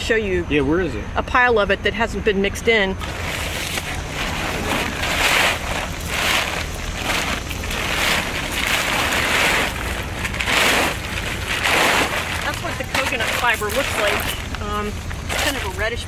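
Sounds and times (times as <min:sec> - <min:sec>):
low rumble: 0:03.0 - 0:15.7
plastic tarp rustling: 0:03.0 - 0:16.0.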